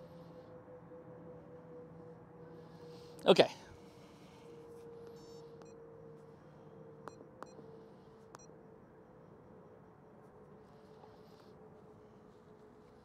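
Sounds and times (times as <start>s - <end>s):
short electronic beeps: 7.1s - 7.6s.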